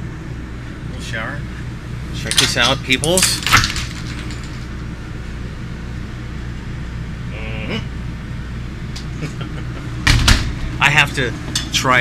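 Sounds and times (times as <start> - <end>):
bus interior mechanical hum: 0.0 - 2.2, 4.6 - 12.0.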